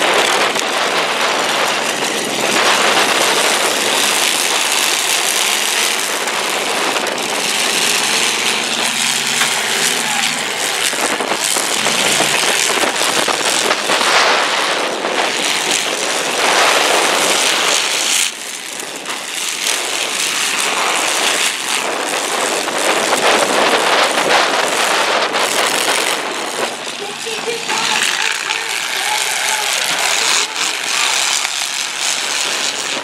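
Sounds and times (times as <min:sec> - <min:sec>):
car engines revving hard: 0:00.0 - 0:33.0.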